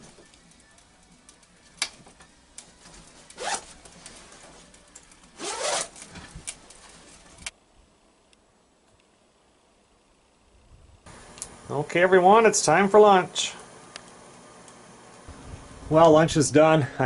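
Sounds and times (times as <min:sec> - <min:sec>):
clothing rustling: 0:02.7 - 0:04.7, 0:05.4 - 0:07.4
zipper rasping open: 0:03.4 - 0:03.8, 0:05.4 - 0:06.1.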